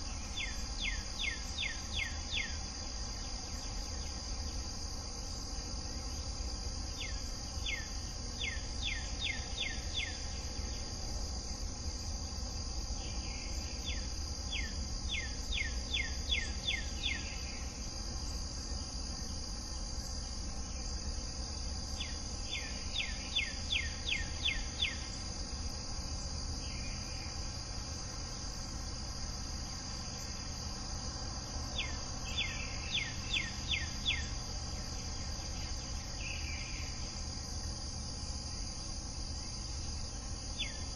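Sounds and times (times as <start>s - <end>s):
insect chorus drone: 0.0s - 40.9s.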